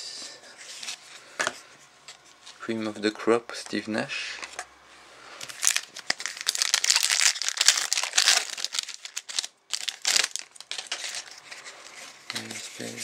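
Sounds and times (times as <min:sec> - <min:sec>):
foil wrapper crinkling: 0:05.4 - 0:12.6.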